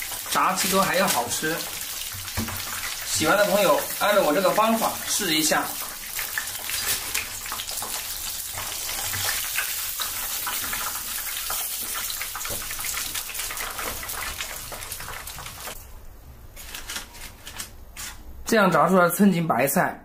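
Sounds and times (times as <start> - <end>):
hot oil sizzling: 0.0 - 15.8.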